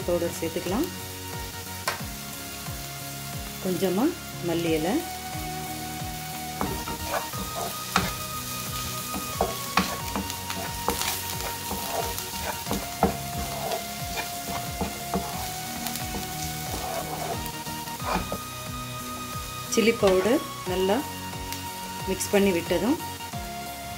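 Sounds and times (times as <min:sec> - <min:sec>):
vegetables sizzling in pan: 0:00.0 - 0:23.9
spatula scraping and tapping pan: 0:06.6 - 0:18.5, 0:20.0 - 0:20.4.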